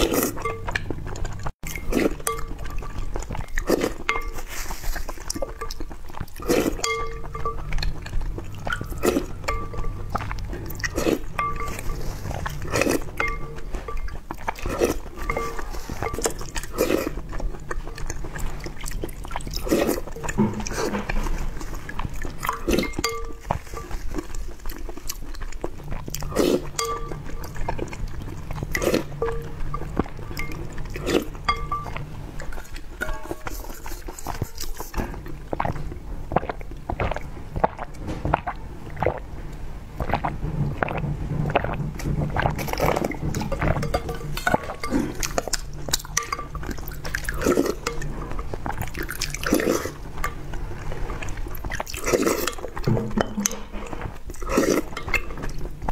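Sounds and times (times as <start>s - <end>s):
slurping through a straw: 0.0s - 6.9s, 7.6s - 55.9s
wet chewing: 0.0s - 55.9s
spoon scraping a glass bowl: 1.7s - 5.8s, 6.4s - 18.6s, 19.4s - 24.4s, 26.2s - 27.9s, 28.5s - 35.2s, 42.6s - 55.7s.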